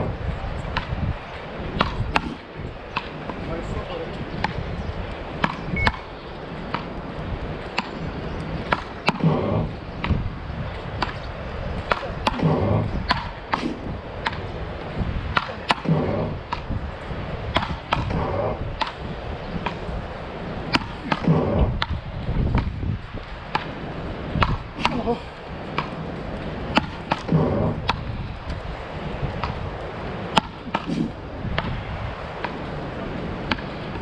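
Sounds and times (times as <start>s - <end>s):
wooden paddles hitting ball: 0.6s - 1.0s, 1.7s - 3.4s, 4.4s - 4.6s, 5.3s - 7.0s, 7.7s - 9.4s, 11.0s - 11.2s, 11.8s - 14.6s, 15.3s - 16.8s, 17.5s - 19.9s, 20.7s - 22.8s, 23.4s - 25.1s, 25.7s - 28.2s, 29.4s - 32.8s, 33.4s - 34.0s.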